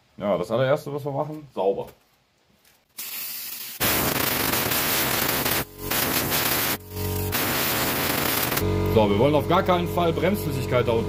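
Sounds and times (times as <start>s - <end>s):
compressed air hissing: 3.0s - 8.6s.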